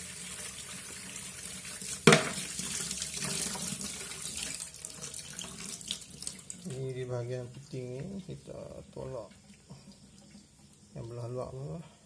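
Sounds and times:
tap water into metal sink: 0:02.0 - 0:03.8
sharp knock: 0:02.1 - 0:02.4.

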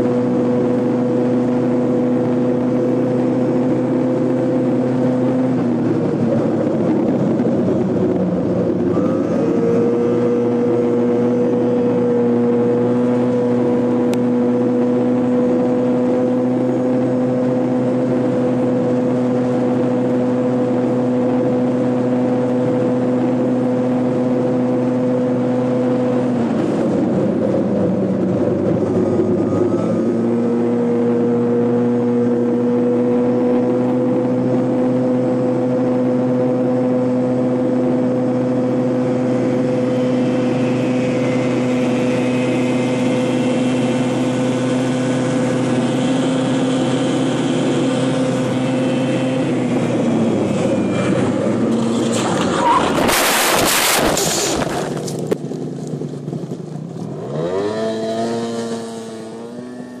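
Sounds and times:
wind rush: 0:00.0 - 0:56.5
scooter engine at full throttle: 0:00.0 - 1:00.0
scooter engine revving: 0:38.2 - 1:00.0
harsh scraping of scooter sliding: 0:50.6 - 0:55.4.

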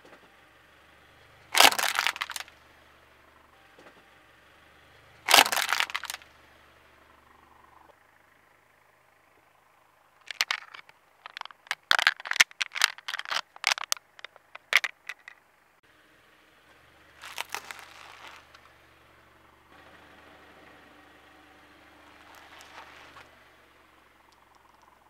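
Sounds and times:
can crushed under car tyre: 0:01.6 - 0:02.5, 0:05.3 - 0:06.2, 0:10.2 - 0:15.3, 0:17.2 - 0:18.5
flattened can crinkling in hand: 0:01.6 - 0:02.5, 0:05.3 - 0:06.2, 0:10.2 - 0:15.4, 0:17.2 - 0:18.5.

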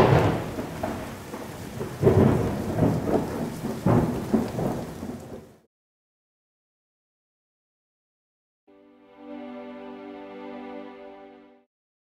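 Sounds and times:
thunder rolling: 0:00.0 - 0:05.6
steady rain: 0:00.0 - 0:05.7.

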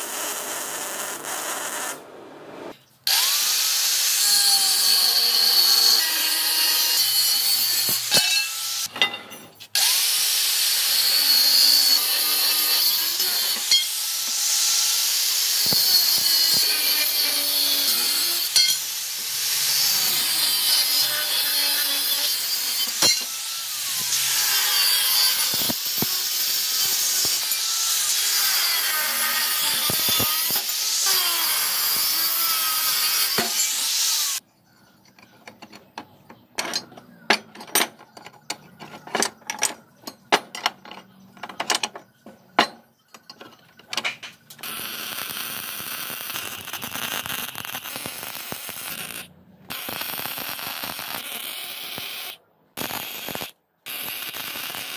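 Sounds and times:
welding crackling hiss: 0:00.0 - 0:04.4, 0:10.0 - 0:34.4, 0:44.6 - 0:54.9
angle grinder cutting steel: 0:03.1 - 0:09.0, 0:09.7 - 0:34.4, 0:44.5 - 0:54.9
steel pieces clinking on workbench: 0:07.9 - 0:09.6, 0:18.6 - 0:18.8.

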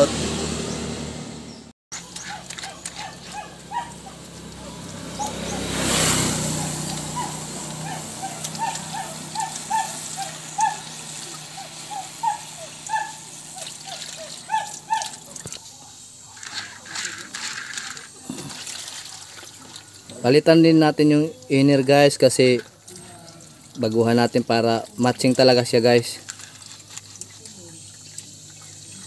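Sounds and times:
animal giving short calls: 0:06.6 - 0:15.4.

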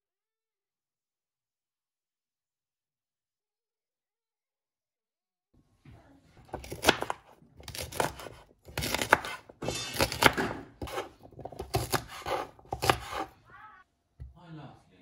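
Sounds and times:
knife slicing on wooden board: 0:06.4 - 0:13.4.

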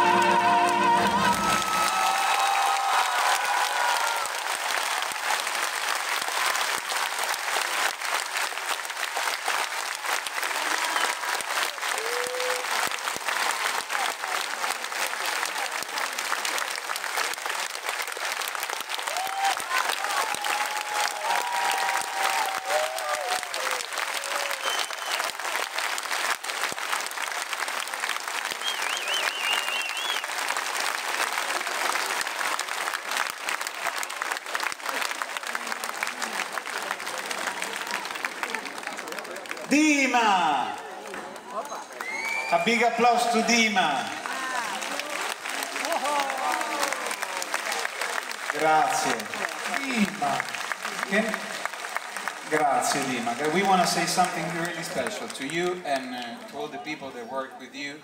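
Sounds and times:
call from crowd: 0:00.0 - 0:05.4
audience applauding: 0:00.0 - 0:57.3.

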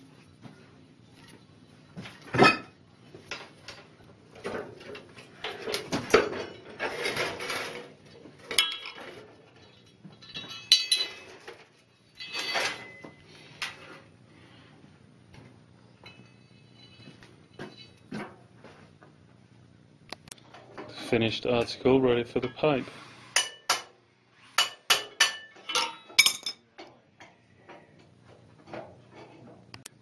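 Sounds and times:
hand tools clinking on steel tank: 0:10.2 - 0:11.3.

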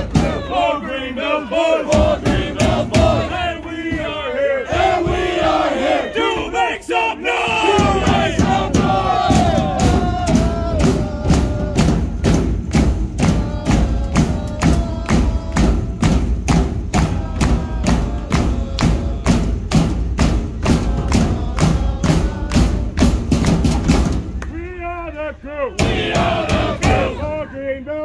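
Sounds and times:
drum beaten in fast rhythm: 0:00.0 - 0:00.6, 0:01.8 - 0:06.6, 0:07.4 - 0:24.4, 0:25.8 - 0:27.3
crowd voices: 0:00.0 - 0:12.4, 0:24.4 - 0:28.0.

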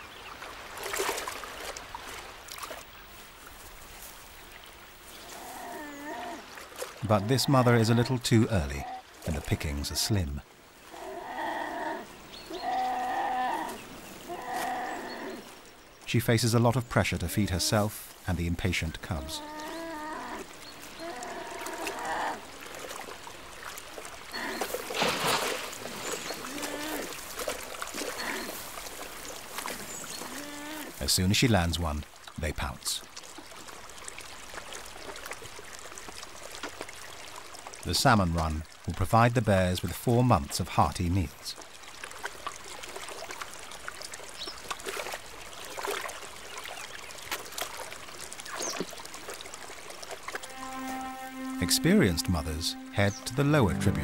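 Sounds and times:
animal wading through water: 0:00.0 - 0:31.0, 0:41.5 - 0:54.0
river water splashing and trickling: 0:00.0 - 0:54.0
bear cubs whining: 0:10.9 - 0:15.5, 0:19.1 - 0:22.4.

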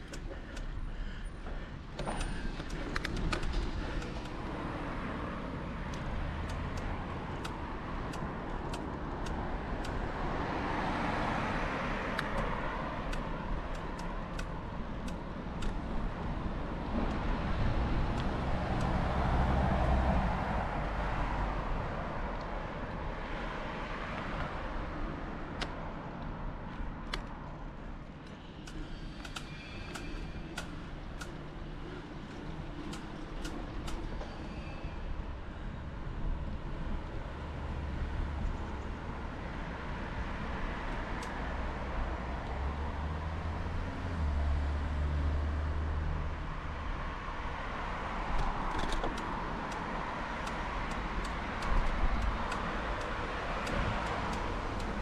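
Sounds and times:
vehicle rumble: 0:00.0 - 0:55.0
road traffic hiss: 0:27.7 - 0:55.0.

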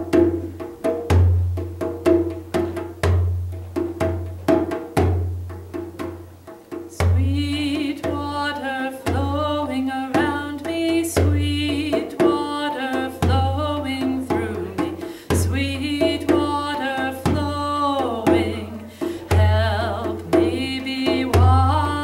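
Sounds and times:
djembe drumming: 0:00.0 - 0:22.0
woman singing: 0:06.9 - 0:22.0.

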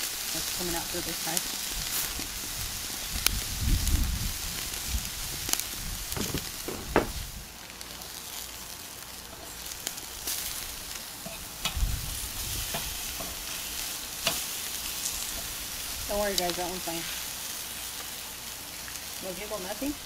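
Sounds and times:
chicken sizzling on a grill: 0:00.0 - 0:20.0
metal tongs clicking on grate: 0:11.2 - 0:11.8, 0:14.2 - 0:14.4.

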